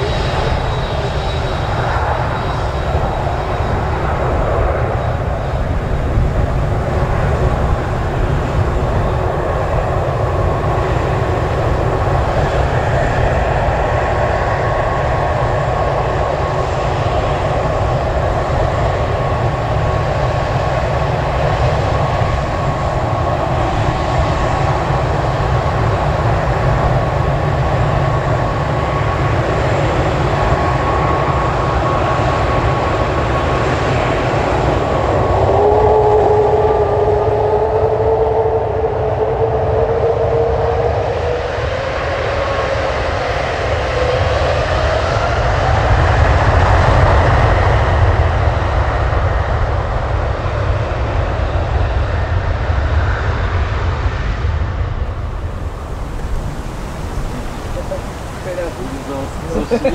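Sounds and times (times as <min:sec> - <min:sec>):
jet engine whine: 0:00.0 - 0:59.9
lower whine rising in pitch: 0:34.8 - 0:44.9
low engine rumble: 0:54.4 - 0:59.9.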